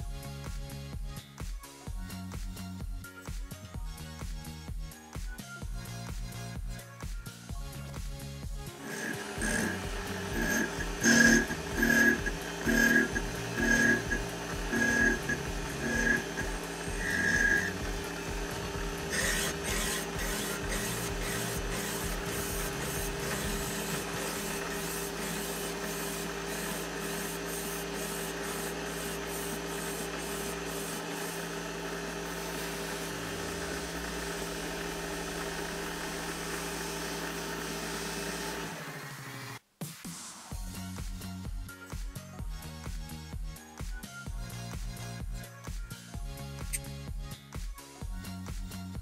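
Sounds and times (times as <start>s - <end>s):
lathe humming: 8.7s - 39.6s
file rasping on brass tube: 8.8s - 31.6s.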